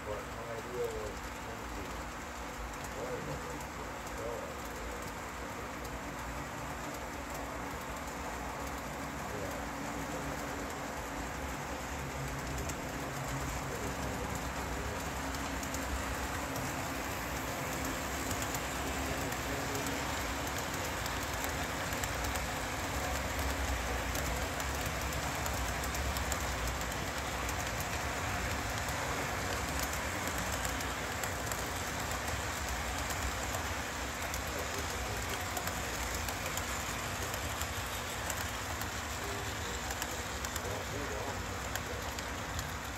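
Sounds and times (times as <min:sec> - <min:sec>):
model train wheels rattling: 0:00.0 - 0:42.9.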